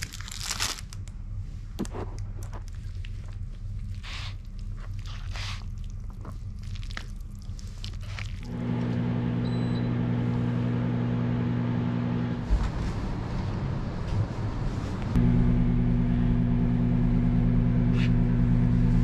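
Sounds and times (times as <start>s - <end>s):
food packaging rustling: 0.0s - 1.0s.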